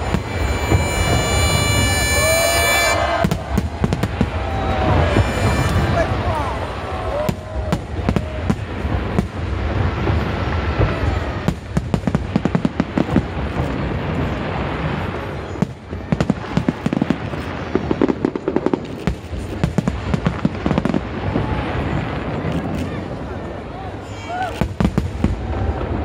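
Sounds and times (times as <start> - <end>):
fireworks booming: 0.0 - 26.0
fireworks crackling bangs: 0.0 - 26.0.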